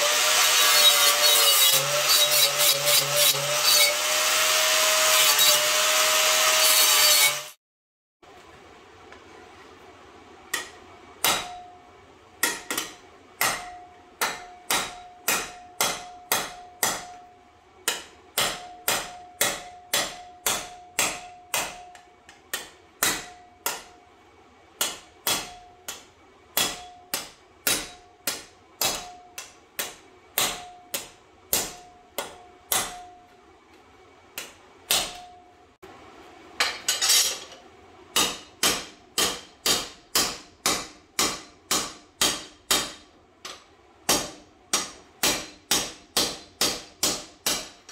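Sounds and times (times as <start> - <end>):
hammer striking steel plate: 10.5 - 24.0, 24.8 - 33.3, 34.9 - 35.5, 38.2 - 43.1, 44.1 - 47.9.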